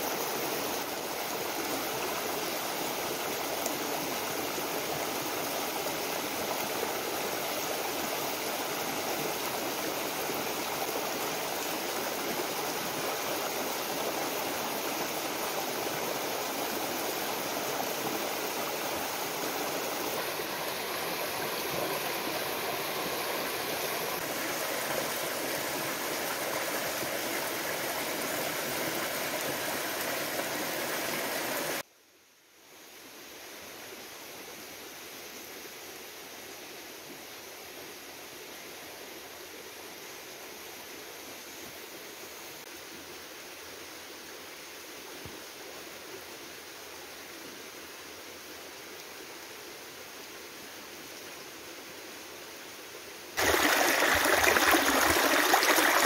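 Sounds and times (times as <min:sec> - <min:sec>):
stream rushing: 0:00.0 - 0:31.8, 0:53.3 - 0:56.0.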